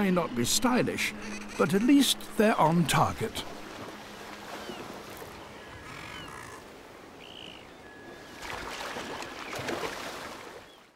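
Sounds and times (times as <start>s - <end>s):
seabirds calling: 0.0s - 9.8s
sea rushing: 0.0s - 10.7s.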